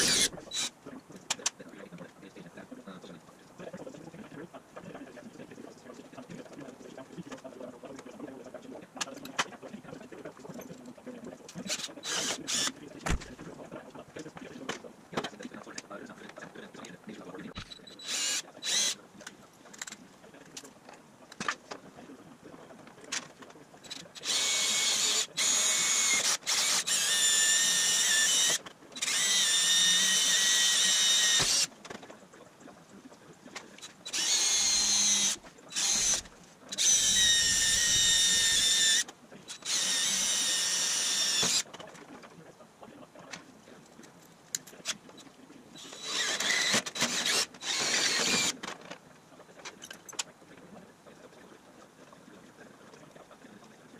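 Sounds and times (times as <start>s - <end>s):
drill motor whining: 0.0s - 0.7s, 11.7s - 12.8s, 17.6s - 19.0s, 23.9s - 31.8s, 33.8s - 41.7s, 45.8s - 48.6s.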